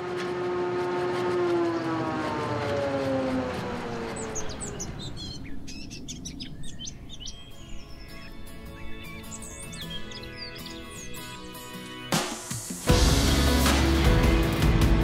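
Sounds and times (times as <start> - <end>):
siren-like sliding tone: 0.0 - 5.3
high bird chirps: 4.1 - 12.2.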